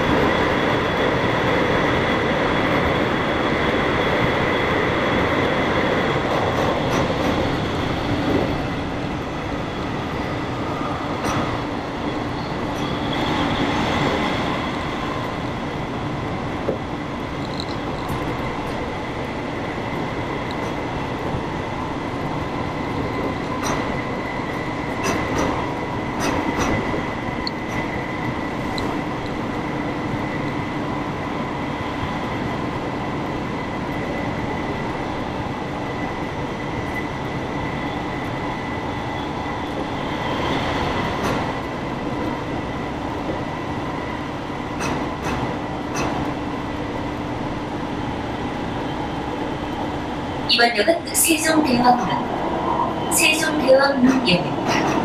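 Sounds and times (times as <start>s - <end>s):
electric train running rumble: 0.0s - 55.0s
sharp ticks and knocks: 17.4s - 18.2s, 44.8s - 46.3s.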